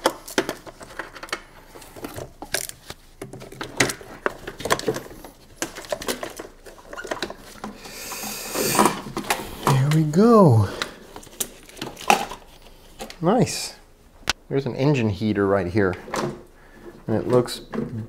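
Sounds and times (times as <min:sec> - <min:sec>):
plastic clicks and scrapes: 0:00.0 - 0:07.9.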